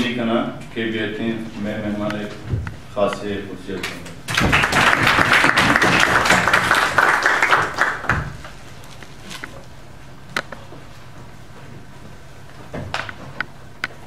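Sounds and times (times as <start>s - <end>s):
audience applause: 4.3s - 8.4s.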